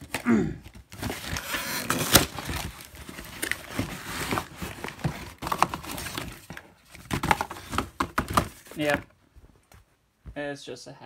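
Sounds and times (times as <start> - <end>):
cardboard box rustling and scraping: 0.9 - 9.0.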